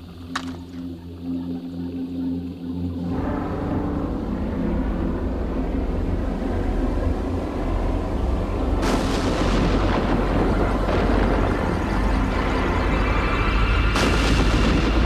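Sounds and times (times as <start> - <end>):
deep rumble: 2.9 - 15.0
sudden loud burst: 13.7 - 15.0.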